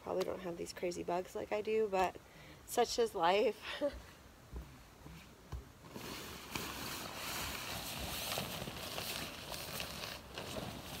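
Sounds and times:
tent fabric rustling: 0:05.8 - 0:11.0.

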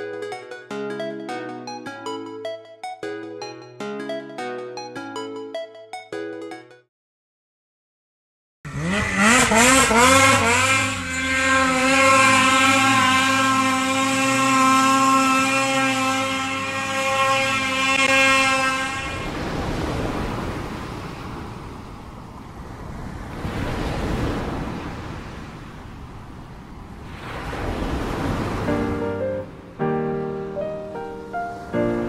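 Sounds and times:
toy motor revving: 0:08.7 - 0:19.6.

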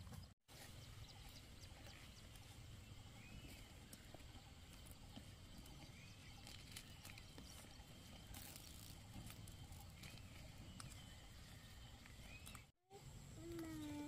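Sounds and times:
leaves rustling: 0:06.4 - 0:11.6.

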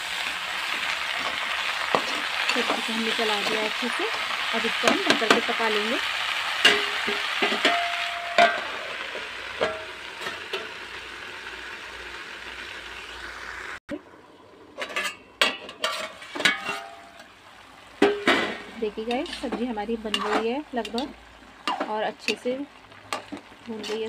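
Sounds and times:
vegetables sizzling in a pan: 0:00.0 - 0:14.2, 0:15.8 - 0:24.0
steel lid clinking on pan: 0:06.6 - 0:08.8, 0:14.8 - 0:17.3.

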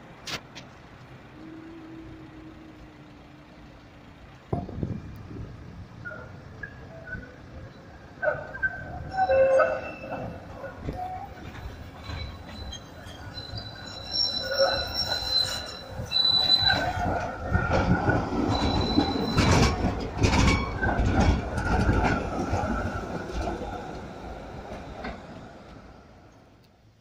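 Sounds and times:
tram wheels squealing: 0:01.3 - 0:26.3
wheels clacking over track junction: 0:03.0 - 0:26.5.

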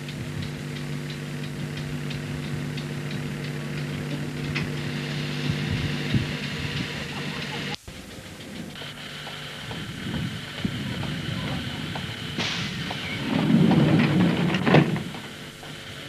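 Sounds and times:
light ticking: 0:00.0 - 0:12.2
electric train humming: 0:00.0 - 0:16.0.

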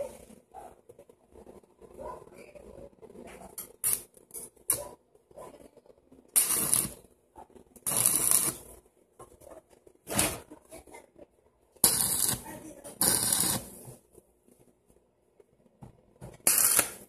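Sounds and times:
arc welder crackling hiss: 0:03.8 - 0:04.8, 0:06.3 - 0:07.1, 0:07.8 - 0:08.8, 0:11.8 - 0:14.0, 0:16.3 - 0:17.0.

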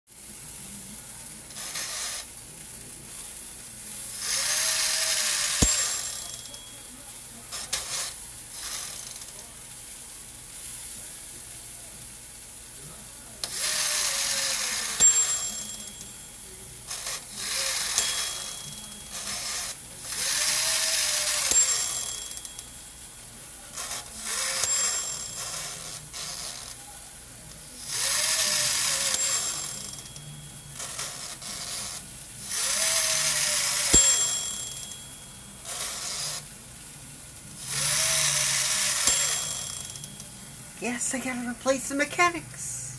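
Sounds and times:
timer ratcheting whir: 0:04.1 - 0:06.7, 0:13.4 - 0:16.2, 0:16.9 - 0:22.8, 0:23.8 - 0:26.8, 0:27.8 - 0:36.5, 0:37.5 - 0:40.4
timer bell ding: 0:05.6 - 0:06.9, 0:14.9 - 0:16.3, 0:17.7 - 0:19.2, 0:21.2 - 0:22.7, 0:24.4 - 0:25.4, 0:33.8 - 0:35.4, 0:38.8 - 0:40.4.

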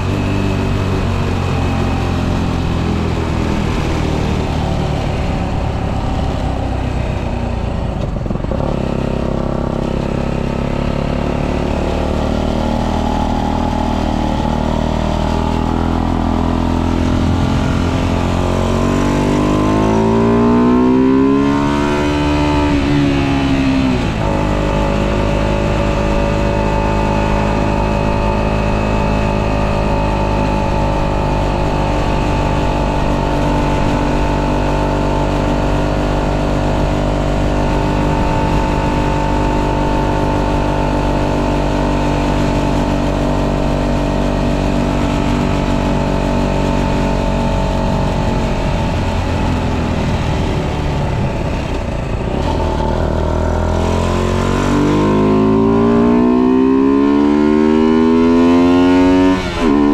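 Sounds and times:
motorbike engine running: 0:00.0 - 0:59.9.

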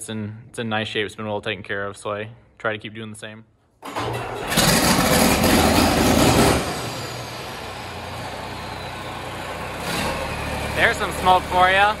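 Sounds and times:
diesel tractor engine idling: 0:03.9 - 0:12.0.

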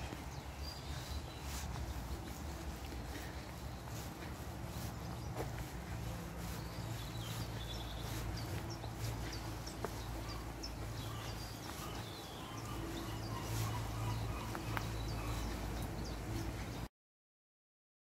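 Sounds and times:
birds chirping: 0:00.0 - 0:16.9
footsteps on dirt path: 0:00.0 - 0:16.9.

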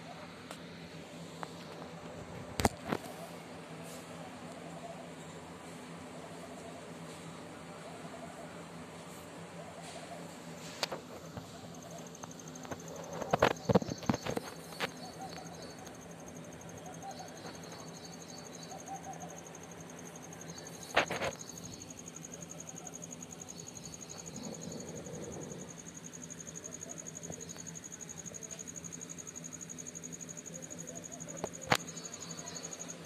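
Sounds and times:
faint chirps: 0:00.0 - 0:33.0
insect trilling: 0:10.8 - 0:33.0.

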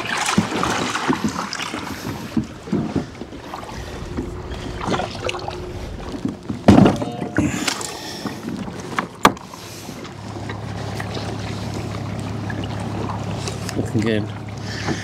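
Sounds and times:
steady low hum: 0:01.7 - 0:13.2.

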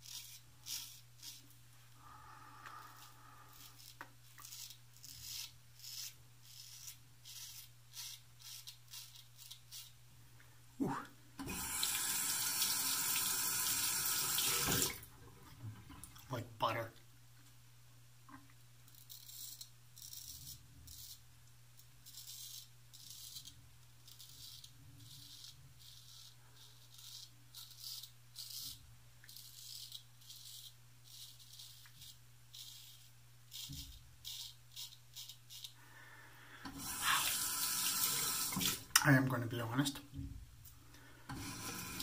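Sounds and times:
razor scraping stubble: 0:00.0 - 0:01.6, 0:02.6 - 0:10.0, 0:18.9 - 0:21.2, 0:21.8 - 0:35.8.

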